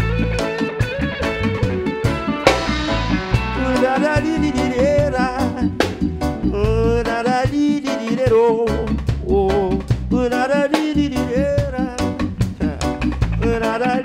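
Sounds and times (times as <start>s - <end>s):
wavering melodic lead: 0.0s - 7.4s
electric guitars: 0.0s - 8.9s, 9.9s - 14.0s
keyboard: 0.0s - 14.0s
reggae band playing: 0.0s - 14.0s
low bass line: 1.0s - 7.2s, 11.0s - 13.6s.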